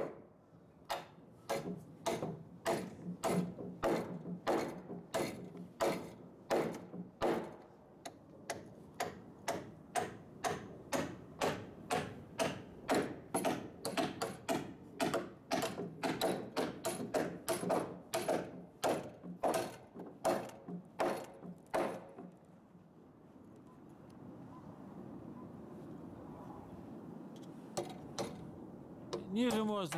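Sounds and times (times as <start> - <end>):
hammer driving nails into wood: 0.9 - 7.6, 8.5 - 22.4, 27.8 - 28.5.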